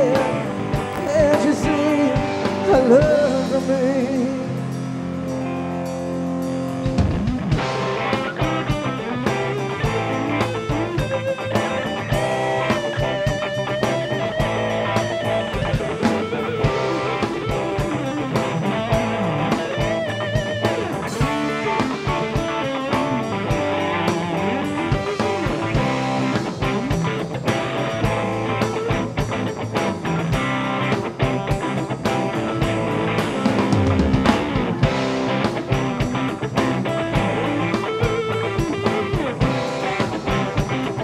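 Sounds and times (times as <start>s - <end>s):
bass guitar: 0.0s - 41.0s
drums: 0.0s - 41.0s
electric guitars: 0.0s - 41.0s
lead guitar with bent notes: 0.0s - 41.0s.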